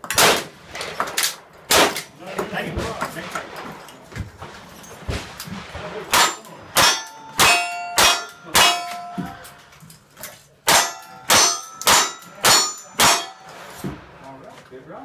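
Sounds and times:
metal clangs ringing: 6.2 - 9.8, 10.7 - 13.9.

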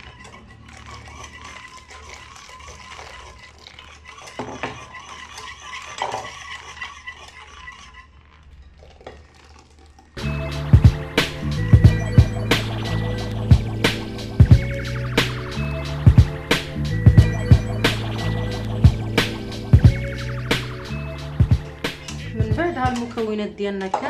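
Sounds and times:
loud background music: 10.2 - 23.2.

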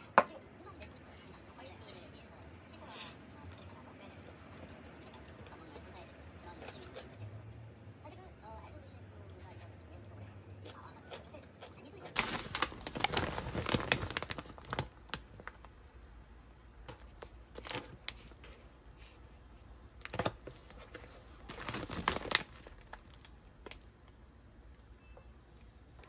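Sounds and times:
plastic bags crinkling: 11.9 - 15.8, 16.9 - 18.7, 20.0 - 23.9.

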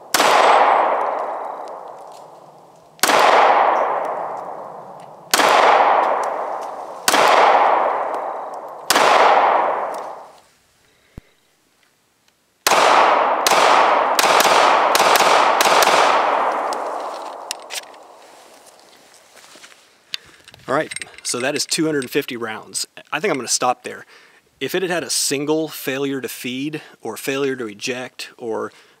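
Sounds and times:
pistol shots echoing: 0.0 - 10.4, 12.6 - 18.2.

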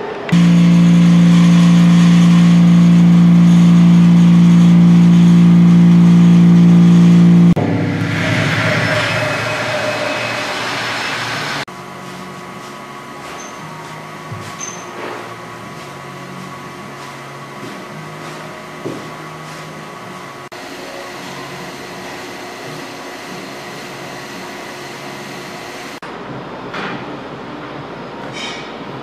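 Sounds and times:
conveyor motor hum and whine: 0.0 - 29.0.

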